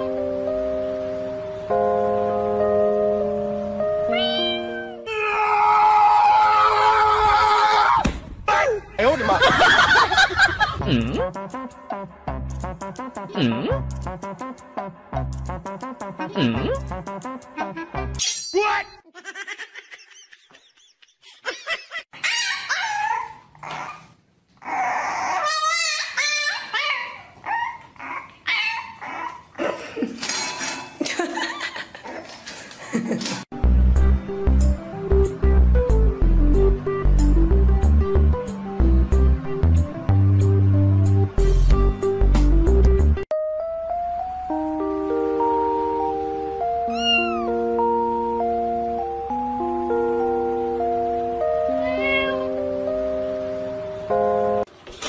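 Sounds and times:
music of held notes: 0:00.0 - 0:05.0, 0:33.6 - 0:54.7
cat meowing: 0:04.1 - 0:05.1, 0:46.9 - 0:47.6, 0:51.7 - 0:52.6
puppy whining and yipping: 0:22.2 - 0:29.6, 0:46.9 - 0:47.6.

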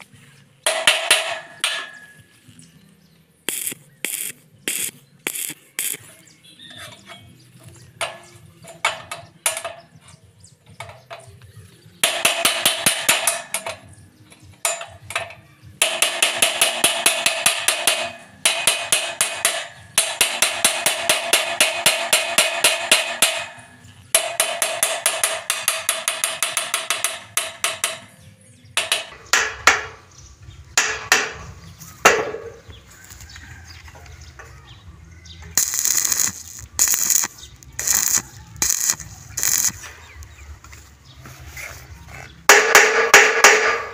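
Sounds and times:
welding arc crackling: 0:03.5 - 0:06.2, 0:35.5 - 0:40.7.

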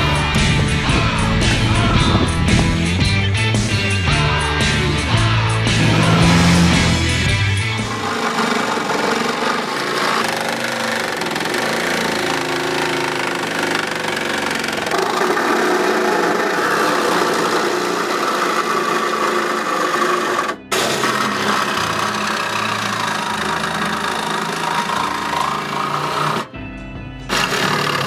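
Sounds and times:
reciprocating saw cutting metal: 0:05.2 - 0:26.5, 0:27.3 - 0:28.0.

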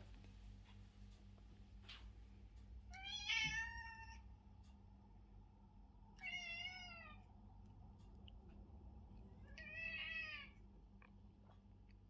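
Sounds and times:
cat meowing: 0:02.9 - 0:04.2, 0:06.2 - 0:07.2, 0:09.5 - 0:10.6.

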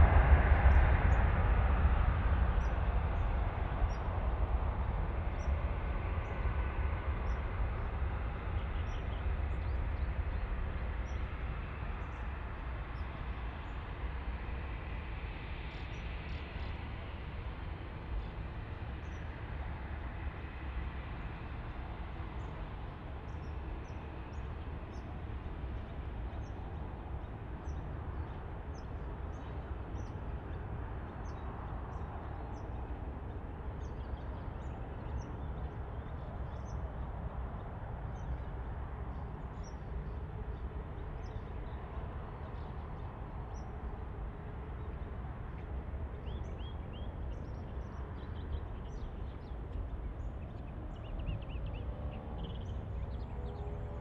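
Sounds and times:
jet engines rumbling: 0:00.0 - 0:54.0.

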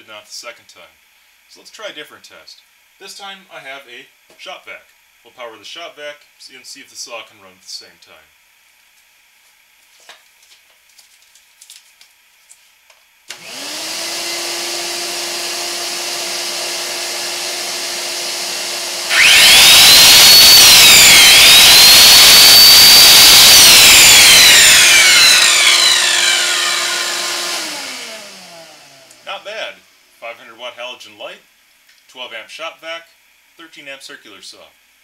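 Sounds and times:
shop vac motor whine: 0:13.3 - 0:29.4
circular saw whining: 0:13.3 - 0:29.5.

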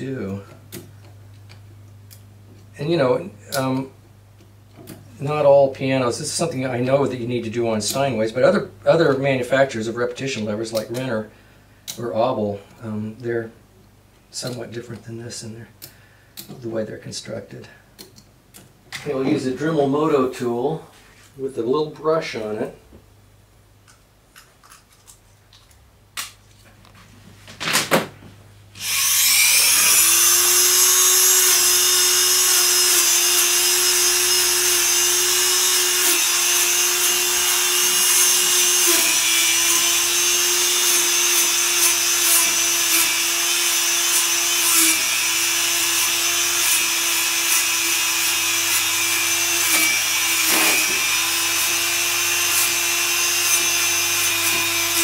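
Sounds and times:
rotary tool whining: 0:28.8 - 0:55.0.

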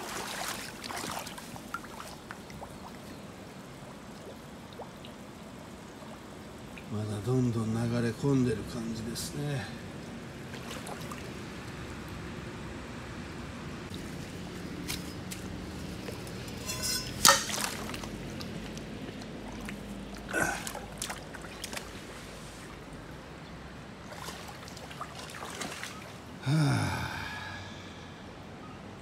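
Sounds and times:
water running and trickling: 0:00.0 - 0:07.0.

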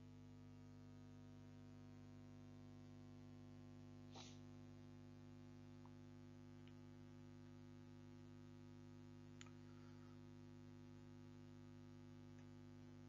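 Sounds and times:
faint steady hum: 0:00.0 - 0:13.0
faint click: 0:09.4 - 0:09.6.

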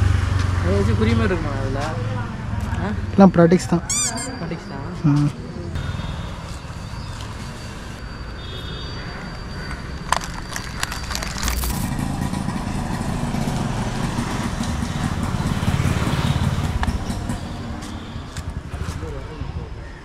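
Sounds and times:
vehicle engine rumble: 0:00.0 - 0:08.2, 0:09.4 - 0:19.9
sharp clicks and rustles: 0:10.1 - 0:12.2.

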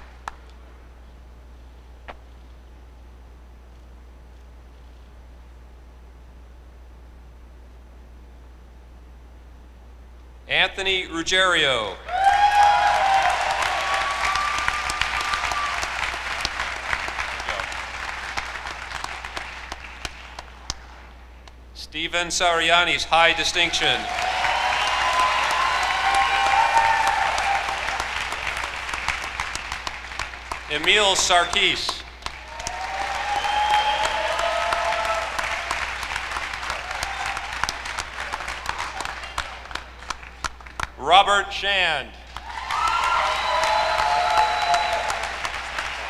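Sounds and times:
audience applauding: 0:00.0 - 0:00.4, 0:12.1 - 0:21.0, 0:23.2 - 0:41.0, 0:42.3 - 0:46.0.

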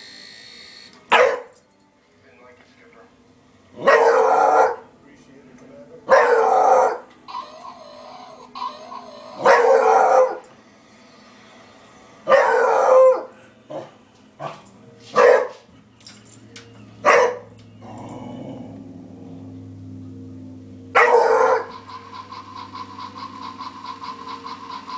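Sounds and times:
steady low hum: 0:00.0 - 0:24.9
dog barking: 0:01.1 - 0:01.6, 0:03.8 - 0:04.9, 0:06.1 - 0:07.0, 0:08.6 - 0:10.4, 0:12.3 - 0:15.7, 0:17.0 - 0:17.5, 0:21.0 - 0:21.8.

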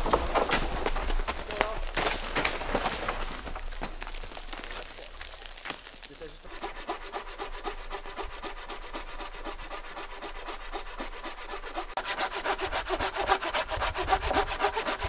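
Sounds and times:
hand saw cutting wood: 0:06.1 - 0:15.0.

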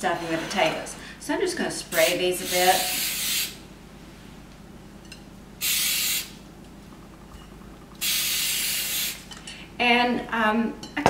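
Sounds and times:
aerosol spray can hissing: 0:05.6 - 0:06.4, 0:08.0 - 0:09.2.

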